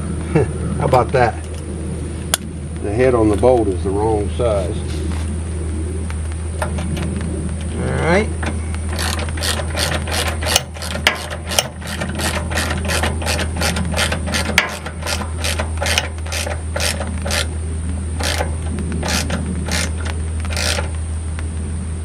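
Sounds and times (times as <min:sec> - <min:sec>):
ratchet wrench clicking: 0:08.9 - 0:17.5, 0:18.2 - 0:21.0.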